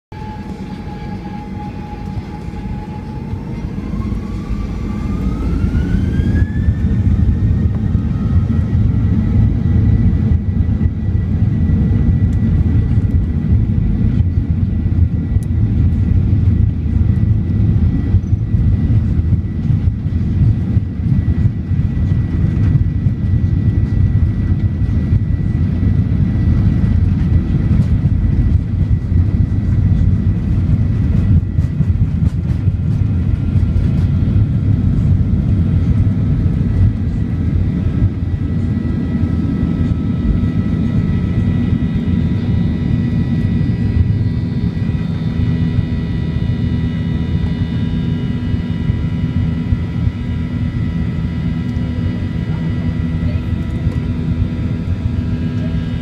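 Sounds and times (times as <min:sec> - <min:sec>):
jet engine fan whine: 0:00.1 - 0:56.0
jet engine roar: 0:00.1 - 0:56.0.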